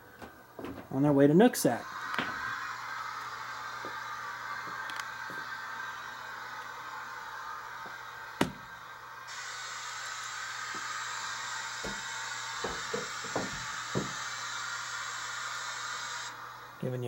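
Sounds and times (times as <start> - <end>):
room hiss with low hum: 0.0 - 17.0.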